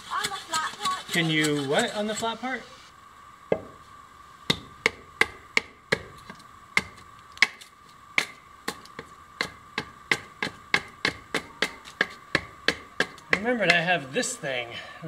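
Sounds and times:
hand tool chopping wood: 4.5 - 13.9.

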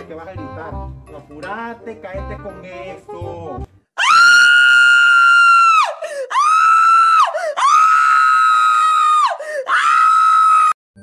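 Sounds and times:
person screaming: 4.0 - 10.8.

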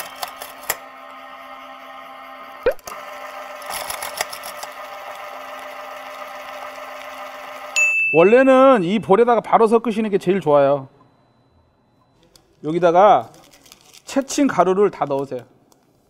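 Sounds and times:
stand mixer whisking batter: 0.0 - 7.8.

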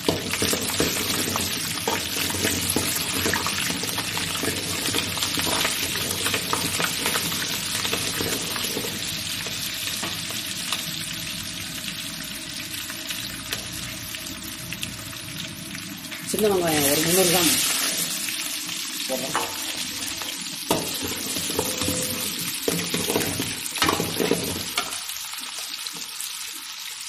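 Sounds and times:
chillies sizzling in hot oil: 0.0 - 27.0
steel ladle stirring: 20.7 - 25.0.

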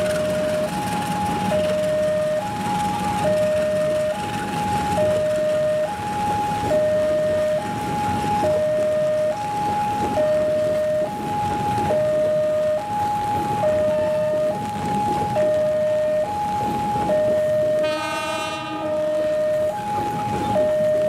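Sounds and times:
train carriages rolling past: 0.0 - 12.1, 13.2 - 21.0
two-tone crossing alarm: 0.0 - 21.0.

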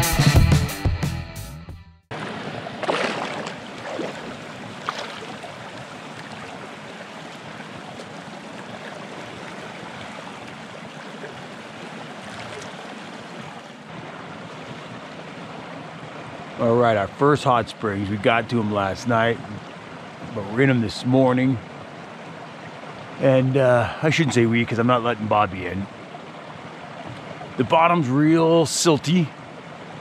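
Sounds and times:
person wading and splashing: 2.1 - 15.9
water rushing and rippling: 2.1 - 30.0.

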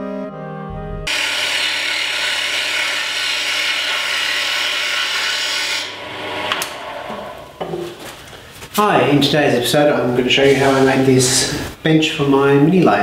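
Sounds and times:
lathe motor low hum: 1.1 - 8.0
lathe tool cutting wood: 1.1 - 8.0.

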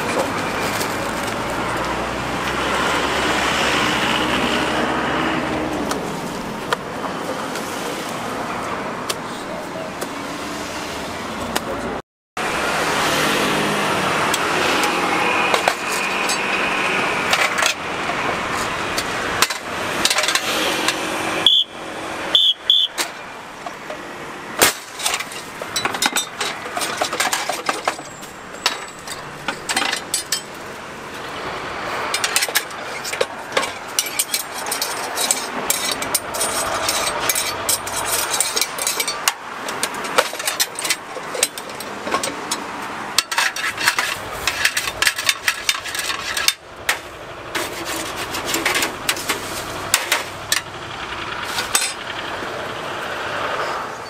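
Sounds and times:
metallic clatter: 14.8 - 21.0, 24.6 - 30.7, 32.0 - 52.9.

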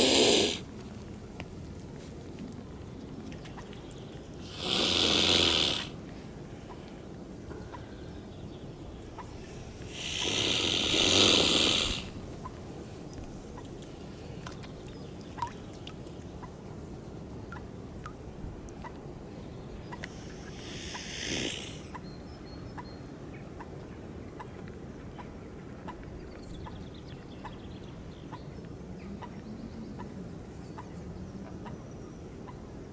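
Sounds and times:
swan hissing: 0.0 - 0.7, 4.4 - 6.0, 9.2 - 12.2, 19.9 - 22.0.

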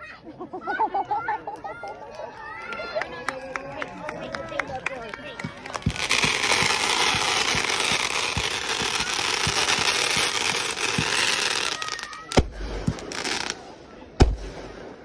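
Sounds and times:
firework bangs: 5.4 - 15.0
firework hissing: 5.8 - 13.6.

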